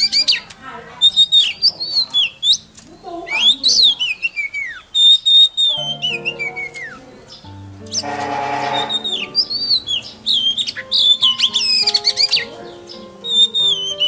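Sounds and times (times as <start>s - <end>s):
songbird singing whistled phrases: 0.0s - 14.0s
background music with low notes: 5.6s - 14.0s.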